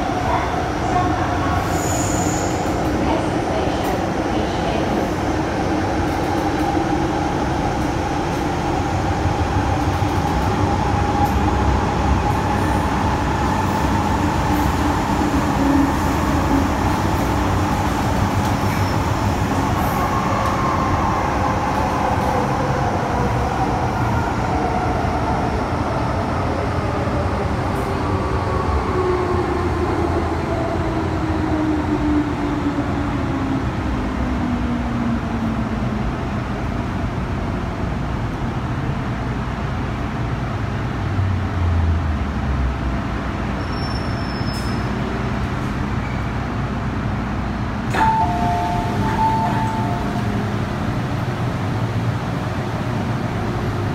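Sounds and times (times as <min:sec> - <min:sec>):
train wheels rumbling on rail: 0:00.0 - 0:53.9.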